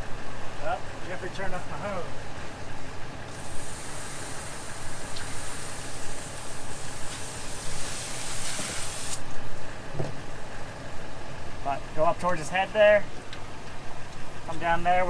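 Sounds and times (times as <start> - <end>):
hose nozzle spraying water: 3.3 - 9.2.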